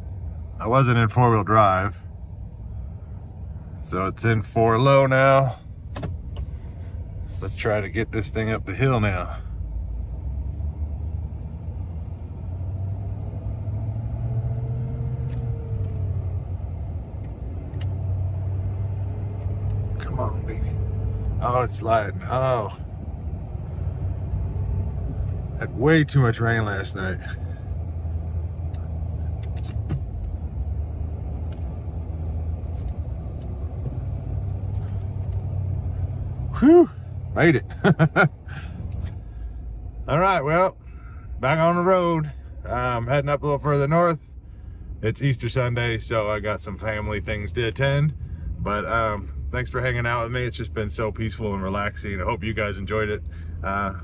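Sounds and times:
truck engine rumble: 0:00.0 - 0:54.0
sharp clicks and knocks: 0:05.9 - 0:06.5.

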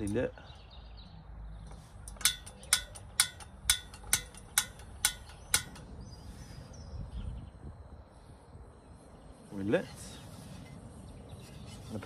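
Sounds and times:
gas stove igniter clicking: 0:02.0 - 0:05.9.

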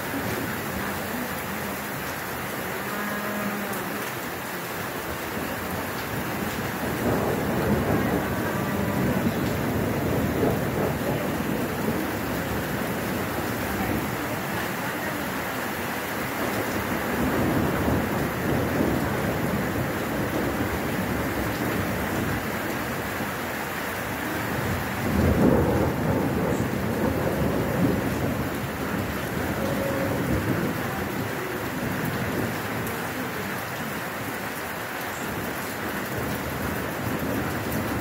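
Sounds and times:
heavy rain: 0:00.0 - 0:38.0
rolling thunder: 0:05.4 - 0:14.8, 0:16.2 - 0:23.3, 0:24.4 - 0:32.9.

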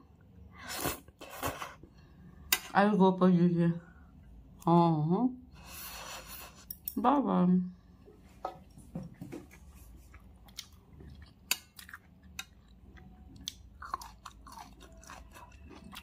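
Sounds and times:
person chewing food: 0:08.6 - 0:16.0.

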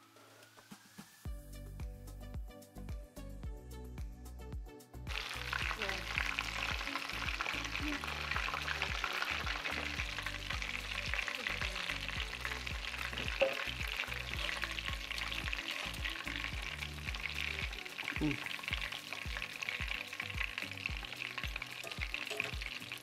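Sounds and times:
fish deep-frying in oil: 0:05.1 - 0:23.0.

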